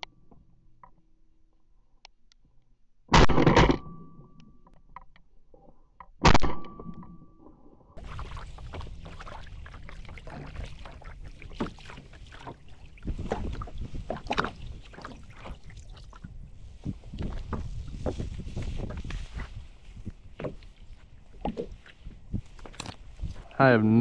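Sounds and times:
shotgun shot: 0:03.1 - 0:03.8
paddle splashes: 0:08.0 - 0:23.4
water lapping: 0:08.0 - 0:23.6.

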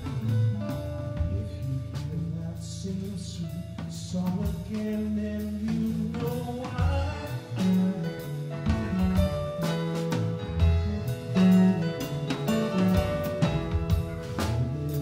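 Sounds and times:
drum kit: 0:00.0 - 0:15.0.

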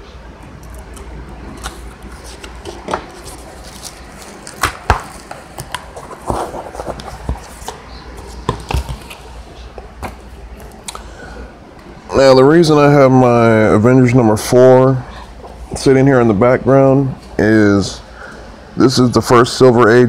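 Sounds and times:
cardboard crackling rustle: 0:01.6 - 0:09.2
cardboard knocks and clicks: 0:08.4 - 0:09.2.

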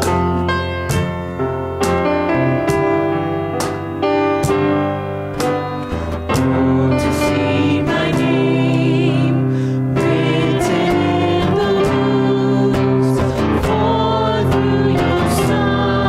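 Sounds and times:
instrumental accompaniment: 0:00.0 - 0:16.0
voices singing a hymn: 0:05.9 - 0:16.0.

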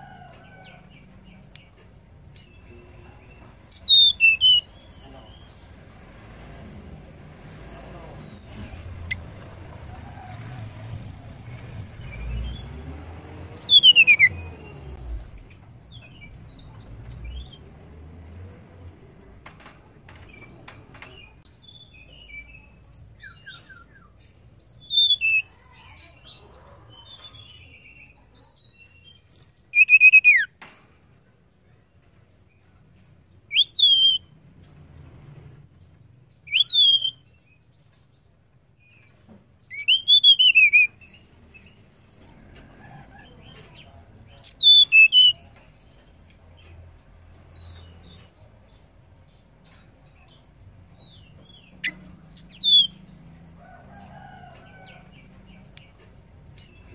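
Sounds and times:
bird whistling: 0:03.5 - 0:04.7, 0:13.5 - 0:14.4, 0:29.3 - 0:30.5, 0:33.5 - 0:34.2, 0:36.5 - 0:37.2, 0:39.7 - 0:41.0, 0:44.2 - 0:45.4.

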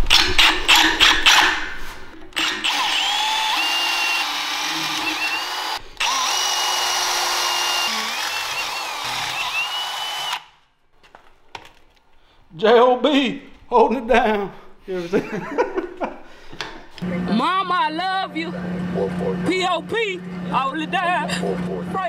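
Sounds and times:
drill bit squealing: 0:02.4 - 0:10.4
cordless drill boring through steel: 0:02.4 - 0:10.6.

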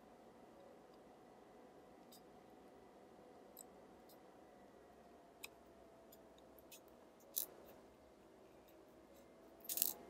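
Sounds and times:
faint steady hum: 0:00.0 - 0:10.0
small metal parts clicking: 0:06.1 - 0:07.8, 0:09.6 - 0:10.0.

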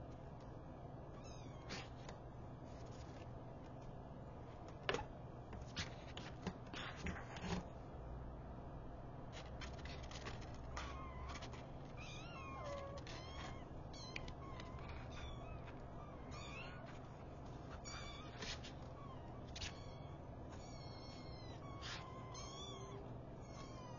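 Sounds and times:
kittens mewing: 0:10.4 - 0:23.9.

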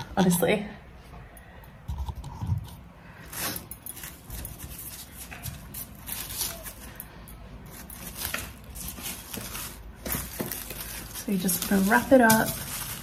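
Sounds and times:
plastic wrap crinkling: 0:03.3 - 0:13.0.

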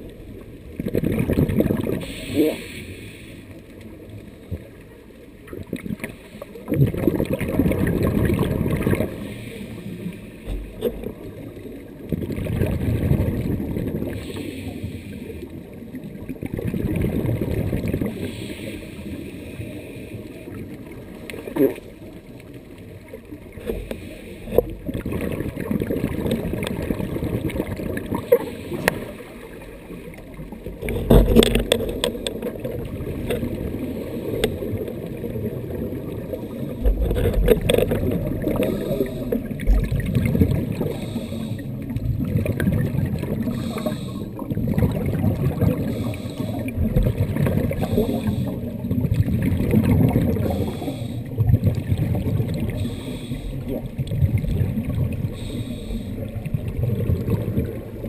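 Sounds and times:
exhaled bubbles rushing: 0:00.0 - 0:02.1, 0:05.5 - 0:09.3, 0:10.6 - 0:14.3, 0:16.0 - 0:18.3, 0:24.6 - 0:58.0
underwater regulator breathing: 0:02.0 - 0:03.6, 0:09.0 - 0:11.0, 0:14.1 - 0:15.5, 0:18.0 - 0:20.6, 0:23.6 - 0:24.8, 0:28.2 - 0:35.1, 0:36.1 - 0:39.8, 0:40.6 - 0:42.0, 0:43.4 - 0:44.6, 0:45.6 - 0:48.8, 0:50.3 - 0:51.4, 0:52.6 - 0:54.0, 0:55.2 - 0:56.5.

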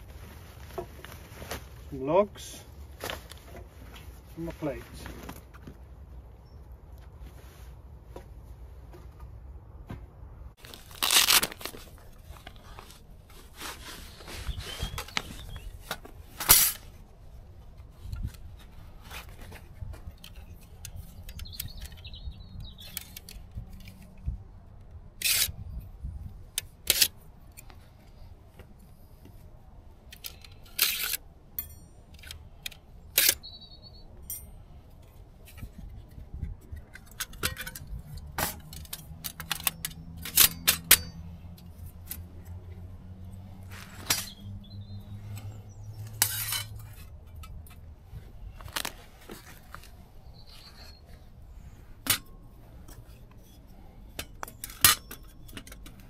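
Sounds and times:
soft handling rustle: 0:00.0 - 0:06.2, 0:06.8 - 0:09.2, 0:10.6 - 0:22.1, 0:45.2 - 0:54.6
metal panels clicking and clinking: 0:34.2 - 0:42.3, 0:52.0 - 0:56.0.

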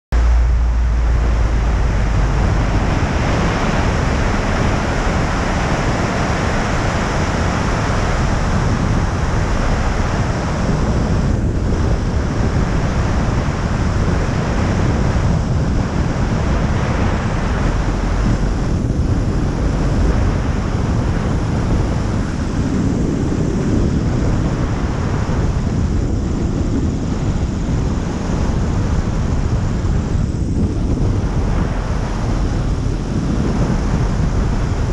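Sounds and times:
wind noise on microphone: 0:00.1 - 0:34.9.

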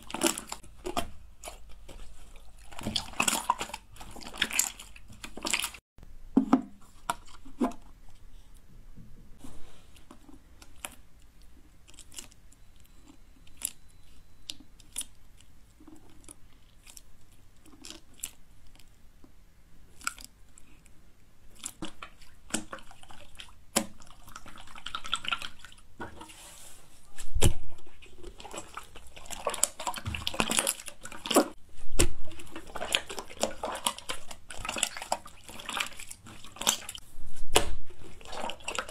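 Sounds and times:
slime squelching and popping: 0:00.0 - 0:05.8, 0:27.1 - 0:38.9.

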